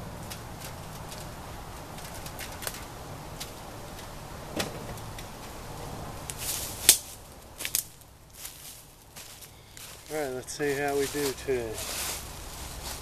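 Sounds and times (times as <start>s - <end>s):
footsteps crunching in dry leaves: 6.3s - 13.0s.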